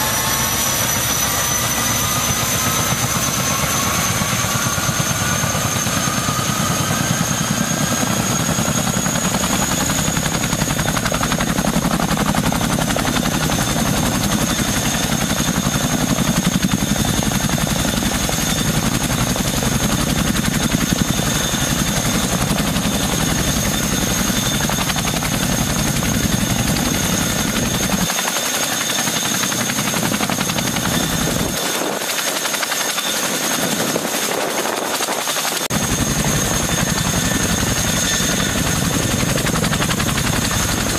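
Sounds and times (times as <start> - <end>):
helicopter rotor chop: 0.0 - 40.9
turbine whine: 0.0 - 40.9.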